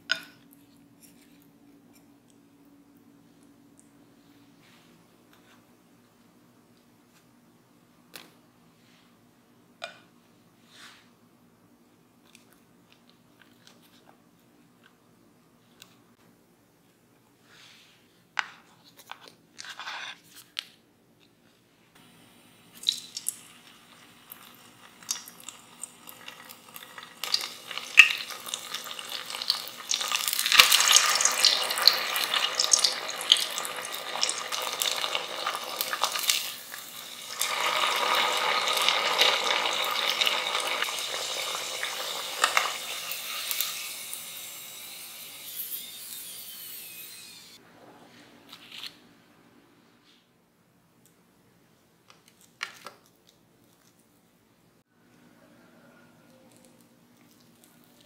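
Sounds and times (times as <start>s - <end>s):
food deep-frying in oil: 22.6s - 46.9s.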